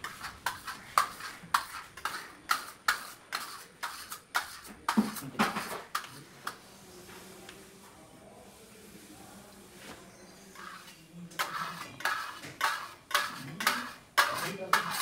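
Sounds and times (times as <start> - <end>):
steel trowel scraping stucco: 0.0 - 6.6, 10.5 - 15.0.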